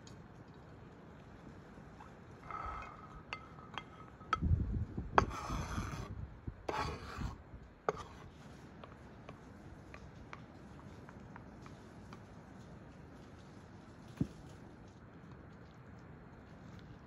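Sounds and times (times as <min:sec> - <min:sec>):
food scraped into bowl: 0:02.4 - 0:04.4, 0:05.2 - 0:06.1, 0:06.7 - 0:08.6.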